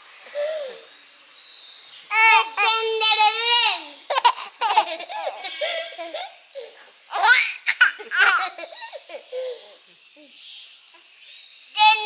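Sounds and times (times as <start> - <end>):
baby laughing: 2.6 - 9.8.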